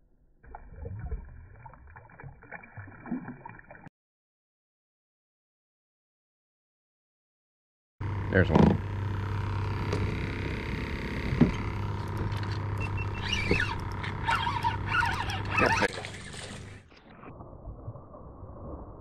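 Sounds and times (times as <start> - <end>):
steady low hum: 8.0 - 16.9.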